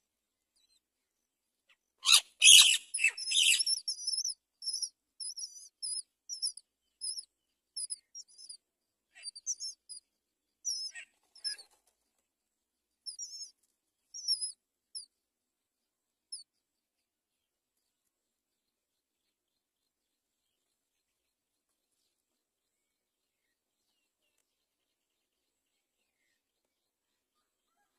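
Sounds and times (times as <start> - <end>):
nestlings cheeping: 2.1 - 7.2.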